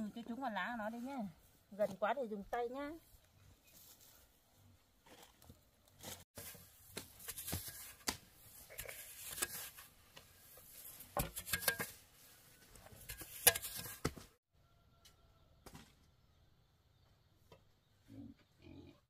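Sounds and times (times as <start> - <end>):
rake scraping garden soil: 5.0 - 14.2.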